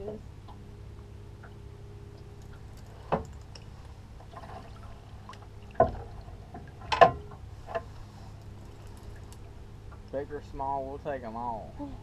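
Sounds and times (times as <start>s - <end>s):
low hum: 0.0s - 12.0s
water splashing against boat: 2.5s - 10.0s.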